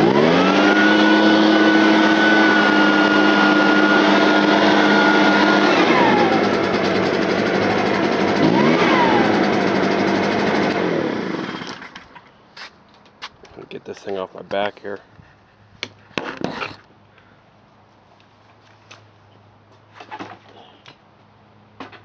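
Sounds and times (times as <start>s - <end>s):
leaf blower engine running: 0.0s - 12.1s.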